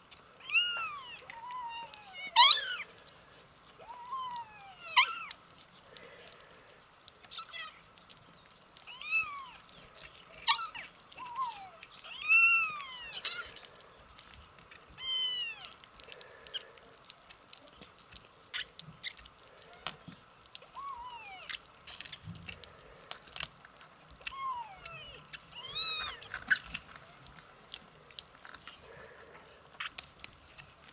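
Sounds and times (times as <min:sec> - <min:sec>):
kittens eating wet food: 0:00.0 - 0:30.9
kittens mewing: 0:00.4 - 0:03.2, 0:03.8 - 0:06.7, 0:08.8 - 0:09.7, 0:10.3 - 0:13.9, 0:14.8 - 0:16.9, 0:24.2 - 0:28.0.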